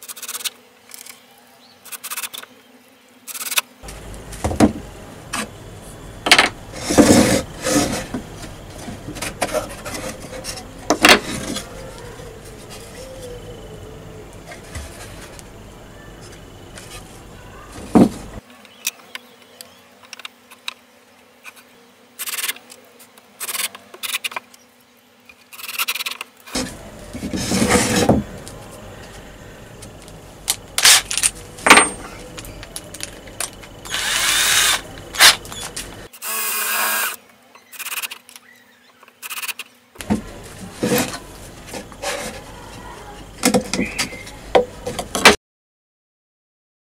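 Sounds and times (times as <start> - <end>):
wood scraping and rattling: 6.2 - 13.1, 14.4 - 15.6, 16.2 - 18.4, 26.5 - 36.1, 40.0 - 45.4.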